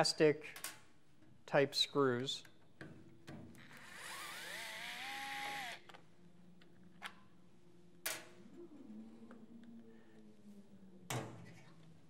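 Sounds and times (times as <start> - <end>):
electric screwdriver whirring: 3.6 - 5.9.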